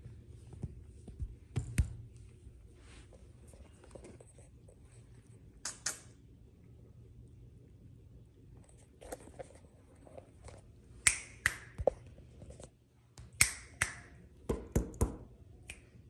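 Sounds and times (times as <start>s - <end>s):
sharp short clicks: 5.6s - 6.2s.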